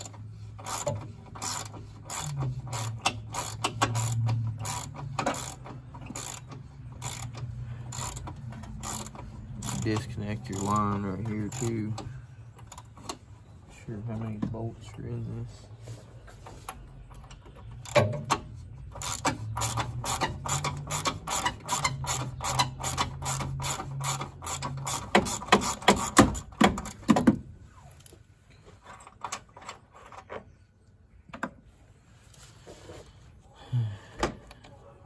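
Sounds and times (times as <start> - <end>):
socket ratchet clicking: 0.0 - 12.9.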